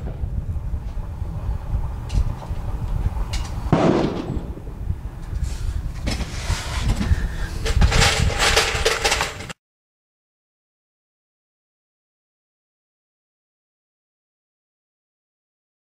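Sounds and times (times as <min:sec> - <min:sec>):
wind rumble on microphone: 0:00.0 - 0:09.6
loud bang: 0:03.7 - 0:04.8.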